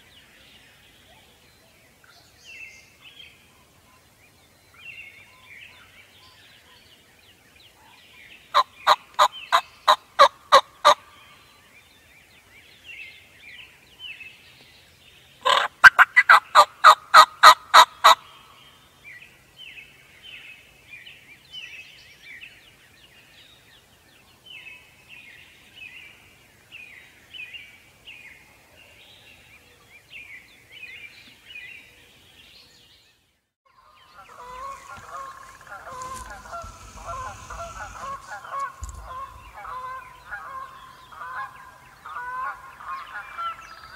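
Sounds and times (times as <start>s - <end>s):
songbird chirps: 0.0s - 16.6s, 17.7s - 43.9s
turkey gobbling: 15.4s - 18.2s, 34.2s - 43.6s
geese honking: 33.8s - 43.9s.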